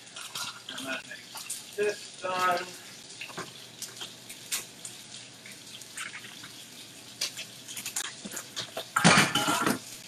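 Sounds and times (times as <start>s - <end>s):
running water in sink: 0.0s - 10.0s
cookware clatter: 7.8s - 10.0s
metal cookware clinking: 8.0s - 9.9s.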